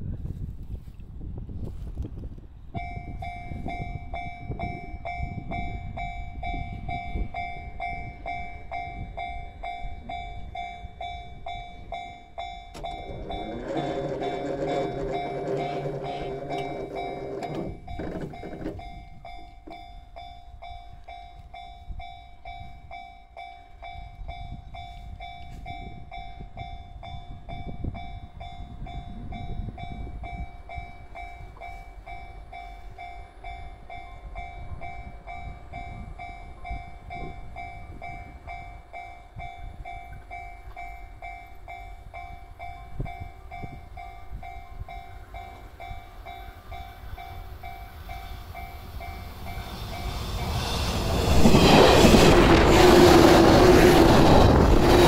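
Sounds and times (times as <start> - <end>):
level crossing warning bell ringing: 2.8 - 55.0
low rumble: 48.6 - 55.0.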